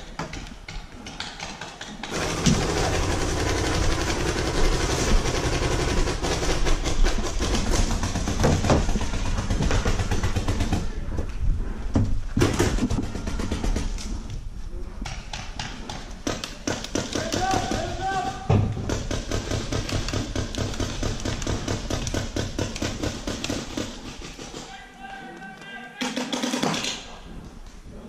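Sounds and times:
paintball markers firing: 15.0 - 18.0, 18.7 - 24.7.

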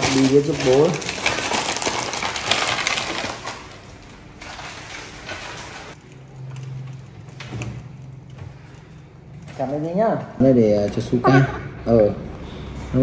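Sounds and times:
rustling of things handled: 0.0 - 11.2.

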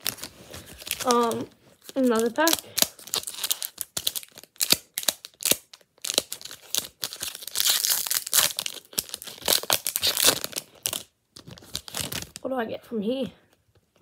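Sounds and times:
foil wrapper crinkling: 0.0 - 12.4.

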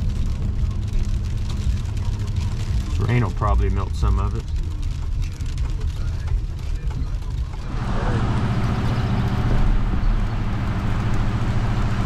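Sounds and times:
engine and road drone: 7.5 - 12.0.

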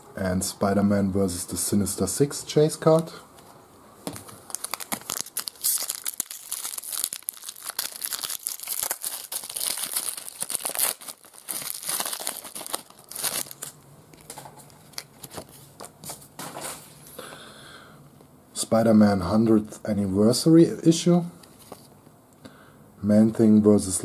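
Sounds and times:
foil wrapper tearing and crinkling: 4.5 - 15.5.

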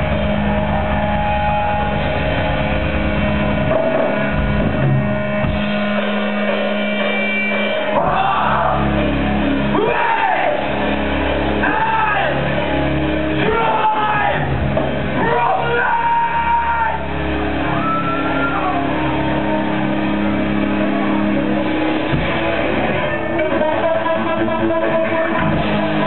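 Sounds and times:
live rock band playing: 0.0 - 26.0
wailing sliding guitar lines: 6.7 - 23.6.

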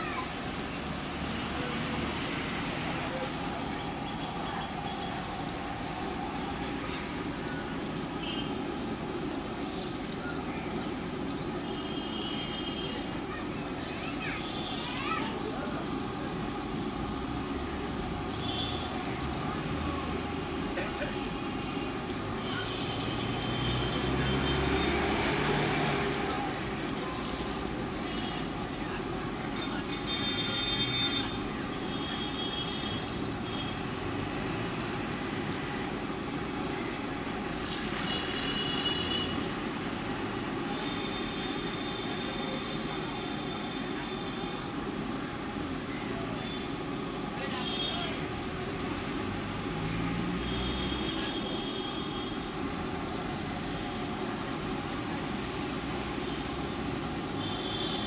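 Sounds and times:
batter hissing in hot oil: 0.0 - 58.0
food deep-frying in oil: 0.0 - 58.0
traffic hum: 0.0 - 58.0.

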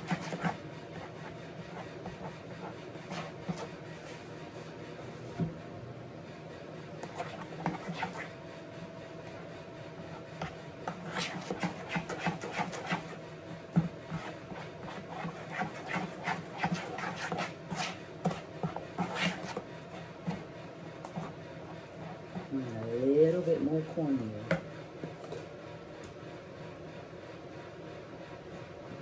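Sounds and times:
spoon stirring batter in bowl: 0.0 - 4.4, 7.0 - 8.4, 10.2 - 22.8.

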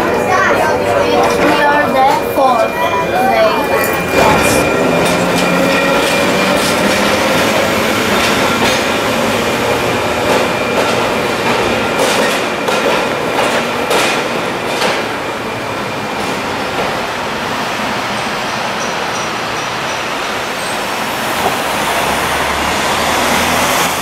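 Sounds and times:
tram wheels clacking on rail joints: 0.0 - 24.0
running gear whine and squeal: 0.1 - 11.3.

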